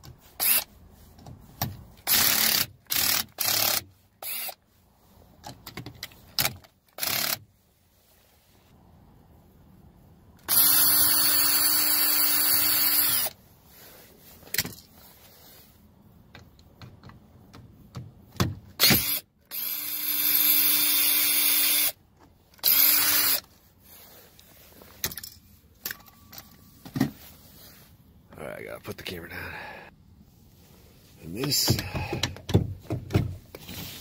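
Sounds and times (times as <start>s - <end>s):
cordless drill running: 2.1s - 4.6s, 10.5s - 13.3s, 18.8s - 22.0s, 22.6s - 23.4s.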